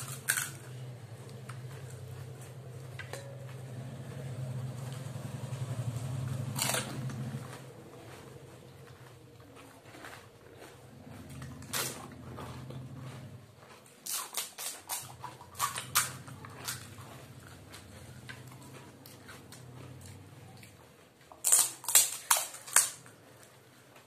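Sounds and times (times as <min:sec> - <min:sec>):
crisp shells cracking: 0:00.0 - 0:00.8, 0:14.0 - 0:16.8, 0:21.4 - 0:23.1
low steady hum: 0:00.0 - 0:14.0, 0:14.9 - 0:24.0.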